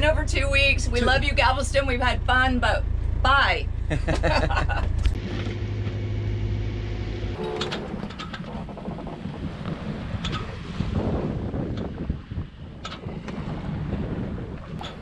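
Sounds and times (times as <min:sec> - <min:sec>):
diesel engine droning: 0:00.0 - 0:15.0
wind buffeting microphone: 0:07.3 - 0:15.0.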